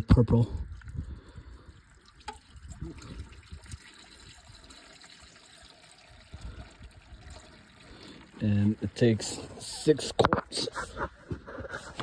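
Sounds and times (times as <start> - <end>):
oil trickling into pan: 0.6 - 9.9.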